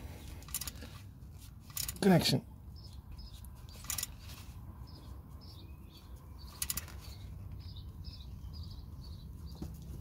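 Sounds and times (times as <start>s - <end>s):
small birds chirping: 0.0s - 10.0s
ratchet clicking: 0.4s - 0.8s, 1.7s - 2.0s, 3.8s - 4.2s, 6.5s - 7.0s.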